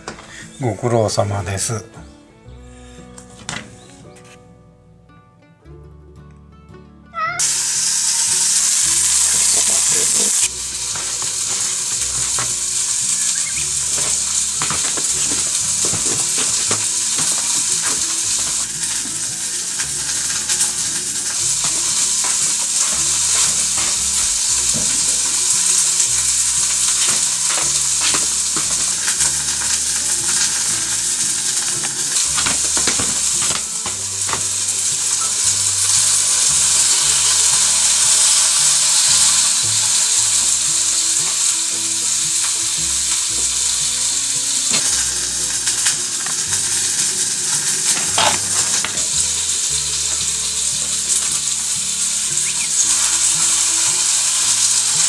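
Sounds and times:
noodles sizzling in a pan: 0:07.2 - 0:55.0.

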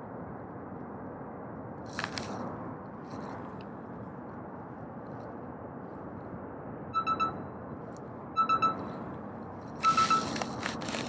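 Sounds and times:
wind: 0:00.0 - 0:11.0
quick electronic beeps: 0:07.0 - 0:07.4, 0:08.4 - 0:08.8, 0:09.8 - 0:10.3.

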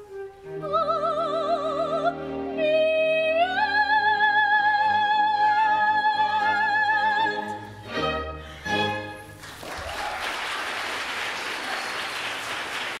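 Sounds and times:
orchestra chords: 0:00.0 - 0:09.5
audience applauding: 0:09.4 - 0:13.0.

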